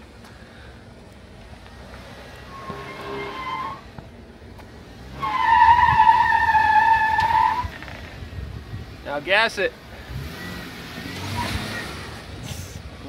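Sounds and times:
tyres squealing on rock: 2.5s - 3.8s, 5.2s - 8.1s.

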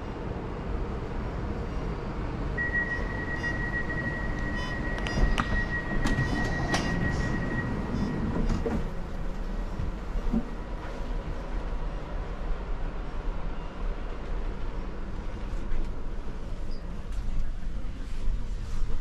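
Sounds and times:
train rumbling: 0.0s - 19.0s
high steady tone: 2.6s - 8.4s.

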